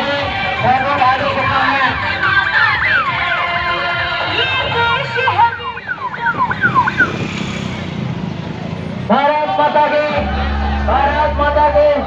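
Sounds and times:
electronic siren falling sweeps: 0:05.7 - 0:07.2.

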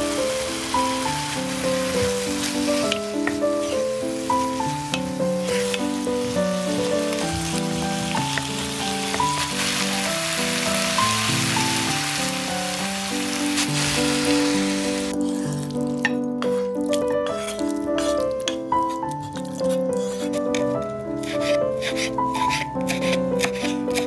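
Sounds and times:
food sizzling in frying pan: 0:00.0 - 0:18.6
gentle background music: 0:00.0 - 0:24.0.

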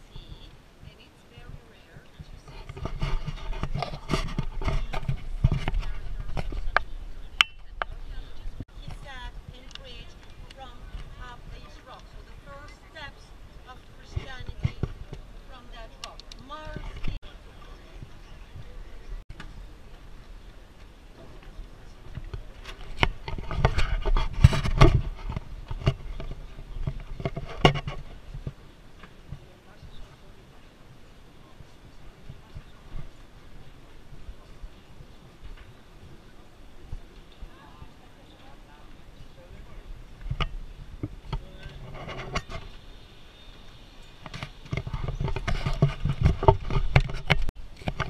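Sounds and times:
camera rubbing against clothing: 0:00.0 - 0:18.6, 0:22.1 - 0:28.6, 0:40.2 - 0:42.9, 0:44.3 - 0:48.0.

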